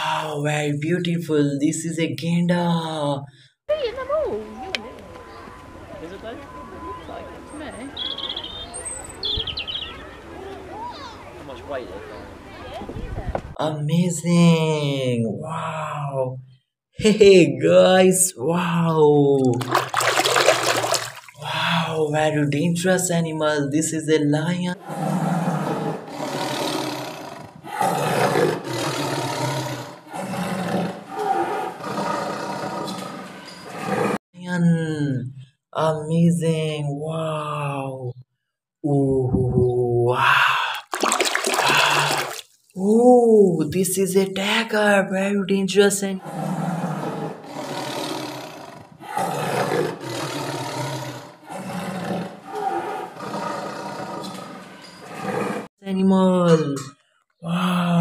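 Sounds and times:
lion roaring: 24.8 - 34.2, 46.2 - 55.7.

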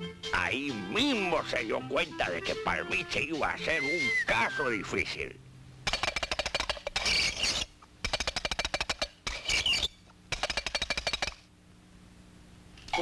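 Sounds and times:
cartoon hooves wooden clattering: 5.9 - 11.5.

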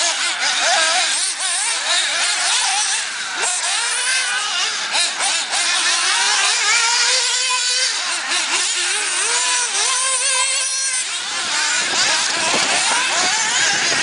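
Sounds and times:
rc buggy engines whining: 0.0 - 14.0.

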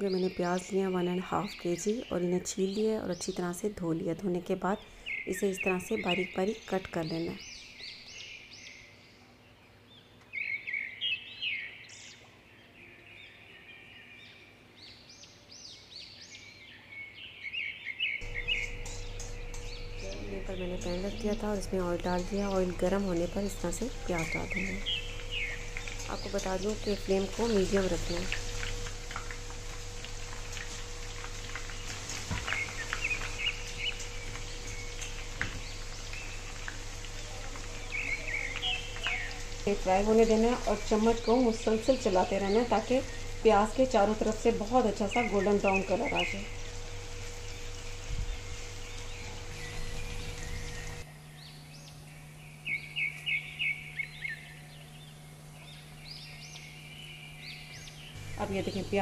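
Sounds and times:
birds chirping: 0.0 - 59.0
onions frying in oil: 18.2 - 51.3, 56.8 - 59.0
steady low hum: 18.2 - 59.0.

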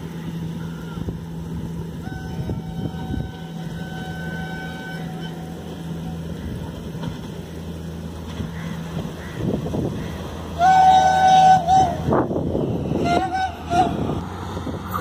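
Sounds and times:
distant locomotive horn: 0.0 - 7.8, 8.5 - 15.0
wind on microphone: 0.4 - 4.2, 9.1 - 15.0.

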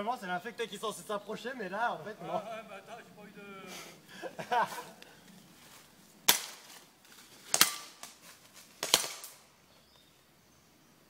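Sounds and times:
airsoft gun shots: 6.3 - 6.7, 7.5 - 8.1, 8.8 - 9.4.

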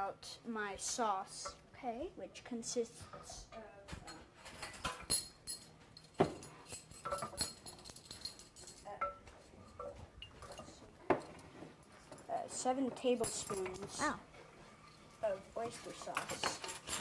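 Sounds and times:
spoon clinking against dishes: 4.5 - 10.8.

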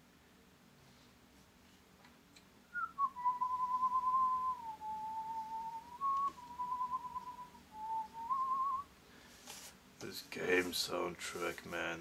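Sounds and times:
person whistling a tune: 2.7 - 8.9.

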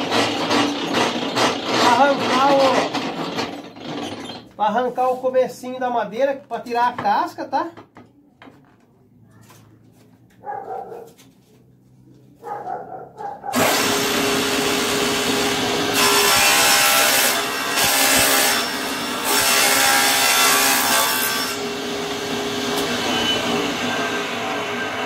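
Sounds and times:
table saw ripping board: 0.0 - 4.5, 13.5 - 25.0.

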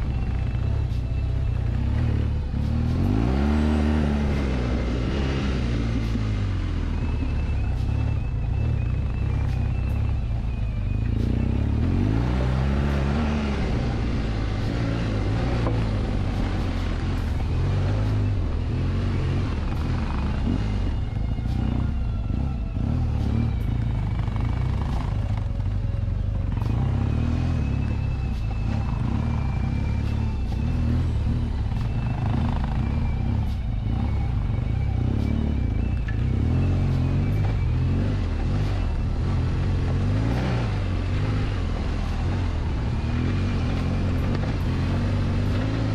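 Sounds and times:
motorcycle engine revving: 0.0 - 45.9.

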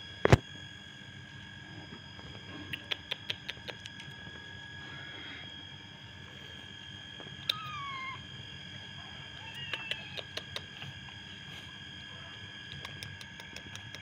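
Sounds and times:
faint high whine: 0.0 - 14.0
cat licking clicks: 2.7 - 4.2, 9.5 - 10.8, 12.7 - 14.0
cat meowing: 7.4 - 8.2, 9.3 - 10.4.

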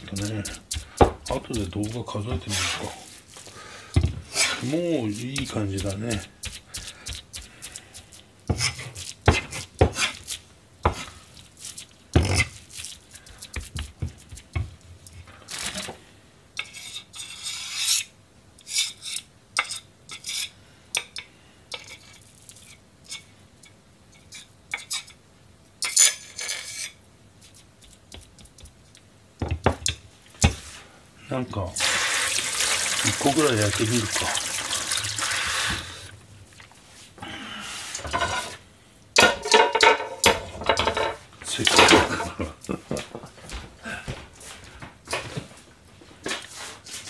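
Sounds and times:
cleaver chopping on cutting board: 0.0 - 2.7, 8.5 - 10.1
blade scraping cutting board: 0.0 - 3.2, 4.3 - 11.2, 12.2 - 12.6, 35.2 - 36.0.

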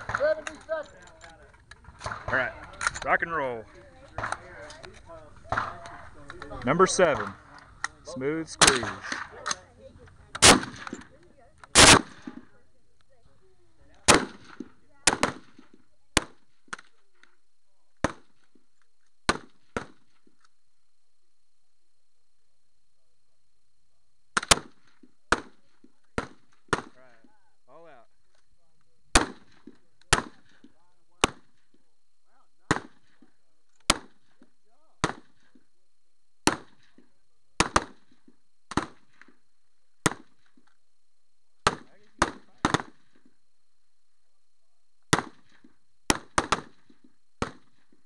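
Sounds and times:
rifle shots echoing: 1.8 - 3.1, 4.0 - 7.8, 8.5 - 9.7, 10.4 - 11.1, 11.7 - 12.5, 14.0 - 16.4, 29.1 - 30.6, 37.6 - 39.3, 41.6 - 43.2, 45.1 - 47.9
faint gunshot crack: 5.4 - 6.1, 10.4 - 11.1, 11.7 - 12.4, 32.7 - 33.2, 35.0 - 35.4, 36.4 - 37.0, 37.6 - 38.1, 41.6 - 43.2, 45.1 - 47.8.

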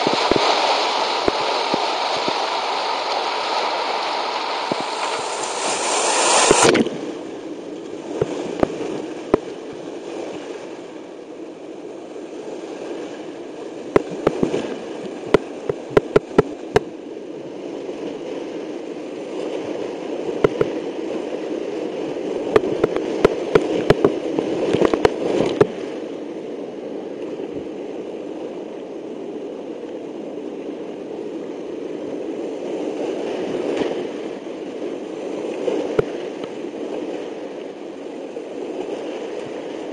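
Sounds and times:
loud splash: 0.0 - 7.4
rushing whitewater: 0.0 - 39.9.

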